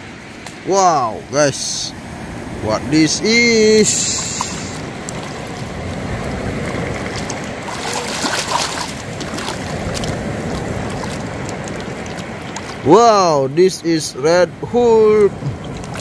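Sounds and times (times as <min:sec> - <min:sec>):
steady rushing noise: 0:00.0 - 0:14.8
water splashing in a puddle: 0:03.6 - 0:13.0, 0:15.2 - 0:16.0.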